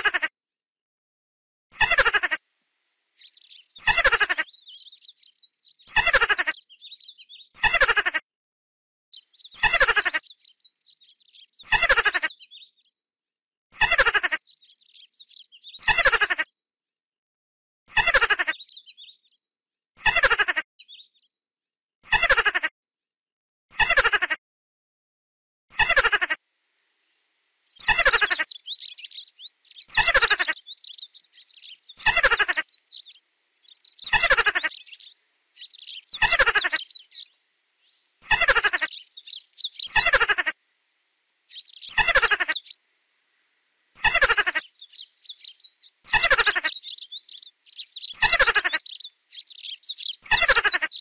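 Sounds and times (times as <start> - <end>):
birds chirping: 3.0 - 8.2, 9.2 - 13.0, 13.8 - 16.5, 18.0 - 19.4, 20.2 - 21.3, 25.8 - 51.0
small animal squeaking: 3.6 - 4.5, 5.8 - 6.7, 27.8 - 37.3, 38.2 - 40.6, 41.5 - 42.8, 44.0 - 51.0.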